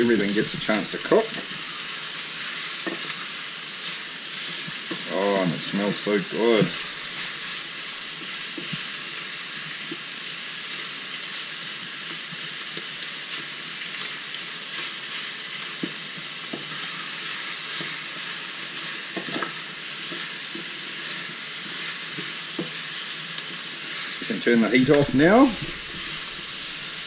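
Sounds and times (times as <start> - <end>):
food sizzling in hot oil: 0.0 - 27.0
wooden spoon scraping a pan: 23.8 - 27.0.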